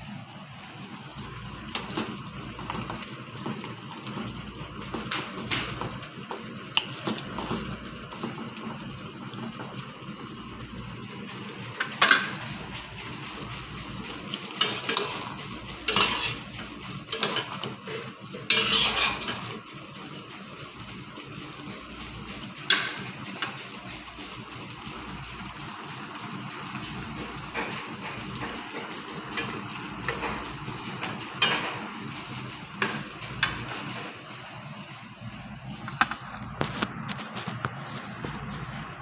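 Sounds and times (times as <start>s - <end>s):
metal spoon scraping cookware: 14.6s - 16.5s, 18.5s - 19.5s.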